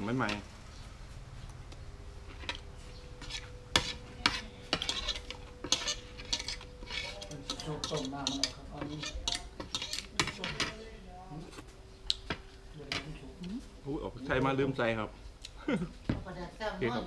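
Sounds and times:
cutlery scraping on plate: 3.2s - 10.8s.

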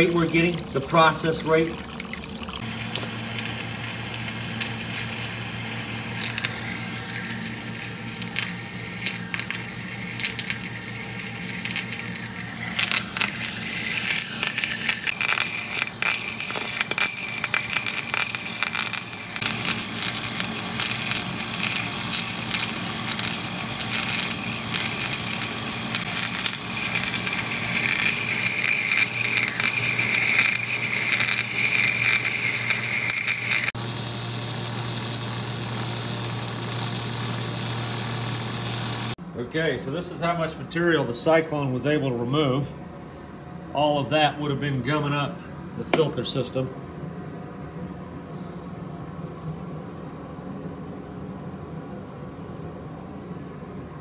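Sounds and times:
running water: 0.0s - 2.6s
electrical spark crackling: 0.0s - 39.2s
steady high whine: 0.0s - 54.0s.

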